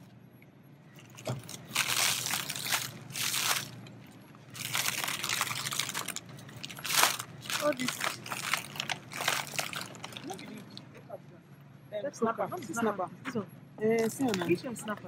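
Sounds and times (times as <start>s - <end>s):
plastic bags crinkling: 1.0s - 10.9s, 14.0s - 14.6s.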